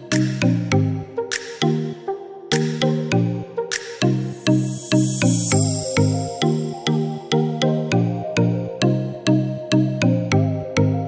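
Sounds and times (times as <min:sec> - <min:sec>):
electronic music with steady beat: 0:00.0 - 0:07.9.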